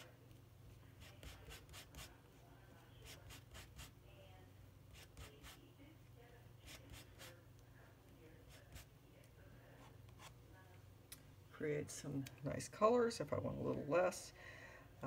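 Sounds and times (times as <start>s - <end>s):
palette knife scraping paint: 1.0s - 2.3s, 4.9s - 5.6s, 6.6s - 7.4s.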